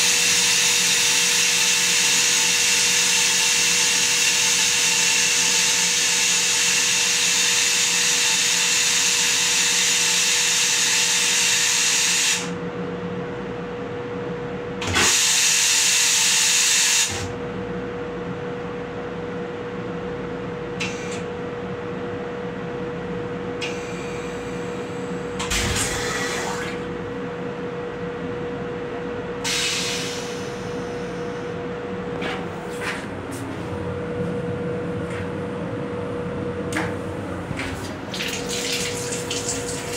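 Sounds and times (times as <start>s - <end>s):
steady hum: 17.3s - 39.9s
toilet flushing rush: 25.4s - 26.9s, 37.9s - 39.9s.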